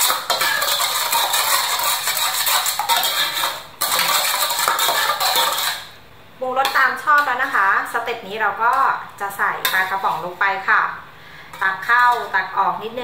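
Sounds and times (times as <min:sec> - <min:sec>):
metal ladle scraping pot: 0:00.0 - 0:06.0.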